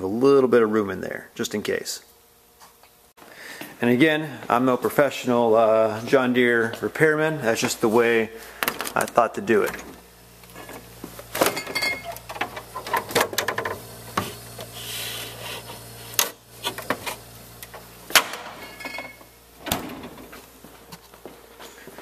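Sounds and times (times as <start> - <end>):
steady low hum: 0.0 - 22.0
freezer clicks knocks and rattles: 11.4 - 13.8.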